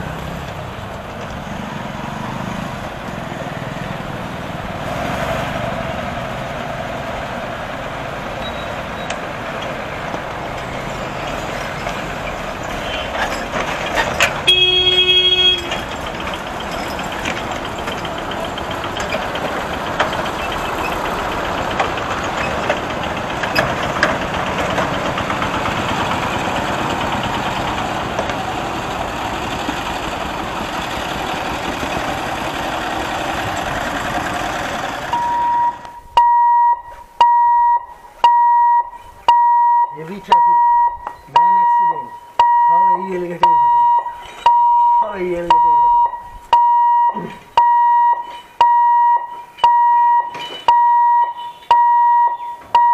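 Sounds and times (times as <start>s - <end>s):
vehicle engines running: 0.0s - 51.8s
vehicle horn: 14.4s - 15.8s
repeating electronic beep: 35.1s - 52.9s.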